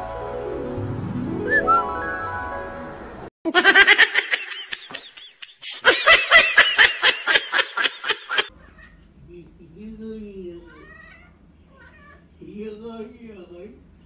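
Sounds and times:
rising run of music notes: 0.0 - 3.3
high-pitched laughter: 3.5 - 8.5.

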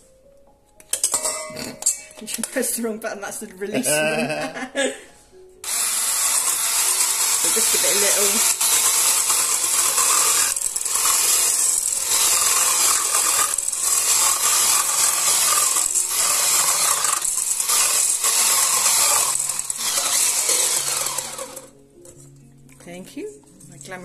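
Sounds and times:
stick blender motor whirr: 5.6 - 21.7.

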